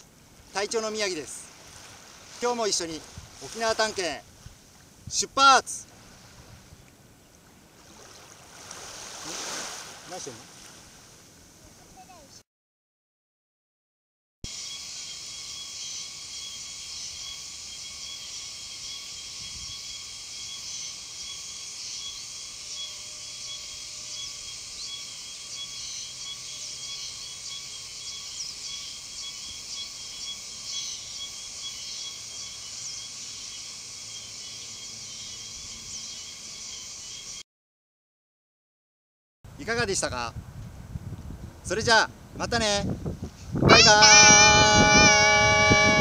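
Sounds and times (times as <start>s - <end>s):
cicadas singing: 0.0s - 5.9s, 14.5s - 37.4s, 43.6s - 46.0s.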